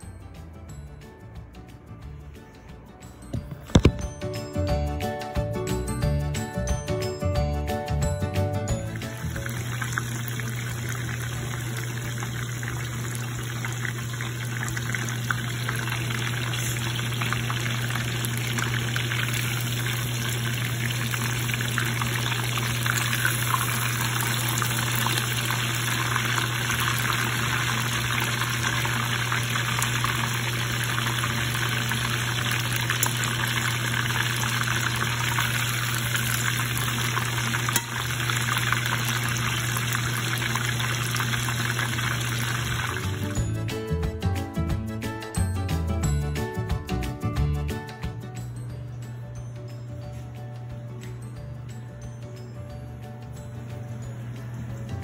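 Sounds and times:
oil sizzling in a pan: 8.7s - 43.5s.

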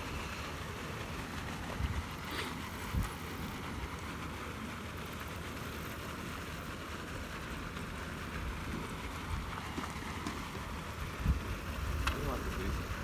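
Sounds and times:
outdoor hiss: 0.0s - 13.0s
wind rumbling on microphone: 1.7s - 3.2s, 10.9s - 13.0s.

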